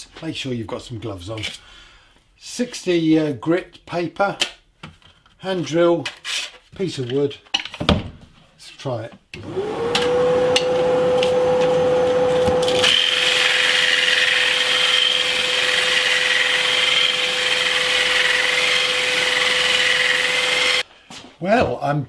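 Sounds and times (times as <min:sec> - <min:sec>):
cordless drill running: 0:09.4 - 0:20.8.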